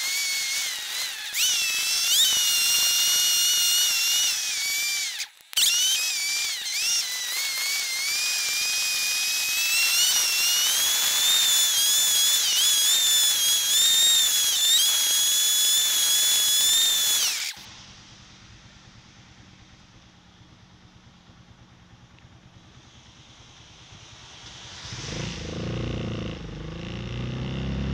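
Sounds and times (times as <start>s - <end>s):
motorcycle engine revving: 18.4s - 27.9s.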